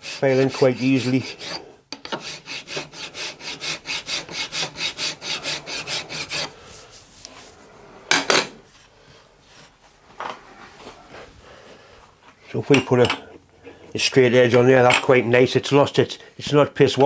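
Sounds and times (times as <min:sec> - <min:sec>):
file rasping on aluminium: 0:00.0 - 0:06.6.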